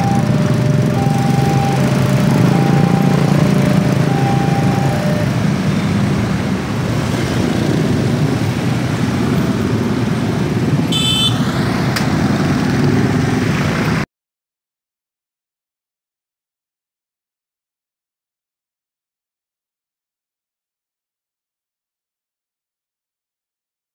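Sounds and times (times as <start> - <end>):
two-tone warning alarm: 0.0 - 5.4, 11.0 - 11.4
motorcycle engines idling and revving: 0.0 - 14.0.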